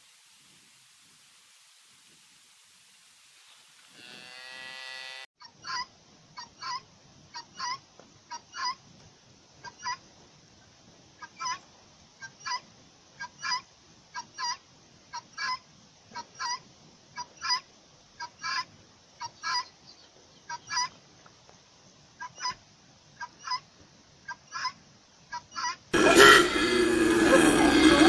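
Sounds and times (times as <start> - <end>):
guineafowl calling: 5.4 - 8.8, 9.6 - 10.0, 11.2 - 11.6, 12.2 - 21.0, 22.2 - 22.6, 23.2 - 26.5.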